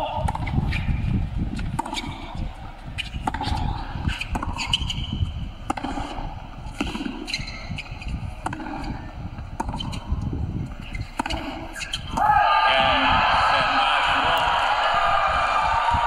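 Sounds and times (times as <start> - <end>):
racket striking tennis ball: 0.2 - 0.9, 1.6 - 2.4, 3.0 - 7.8, 8.4 - 10.2, 10.8 - 12.3
crowd cheering and shouting: 12.1 - 16.0.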